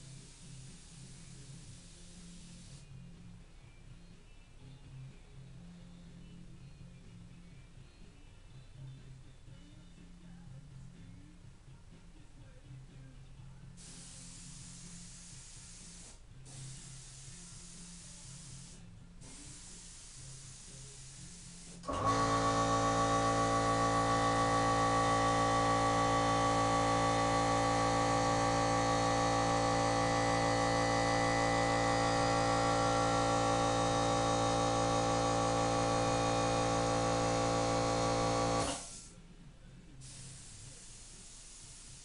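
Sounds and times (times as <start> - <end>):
spray gun hiss: 0.0 - 2.9, 13.8 - 39.2, 40.0 - 42.0
air compressor running: 0.0 - 3.0, 13.8 - 39.2, 40.0 - 42.0.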